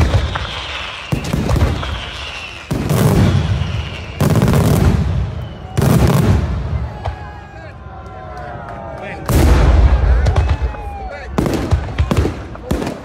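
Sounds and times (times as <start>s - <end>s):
fireworks bursting in loud bangs: 0.0s - 7.2s, 9.3s - 13.0s.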